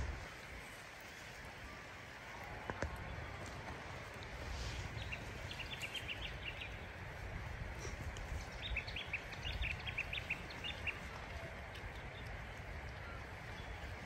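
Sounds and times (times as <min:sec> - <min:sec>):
steady low rumble: 0:00.0 - 0:00.8
songbird chirping: 0:02.3 - 0:07.2, 0:08.0 - 0:14.0.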